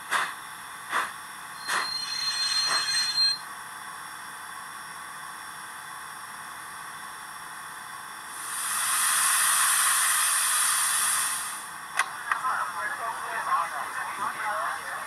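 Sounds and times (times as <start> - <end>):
loud burst of steam: 0.0 - 2.0, 8.3 - 11.7
steam hiss through small speaker: 8.3 - 11.7.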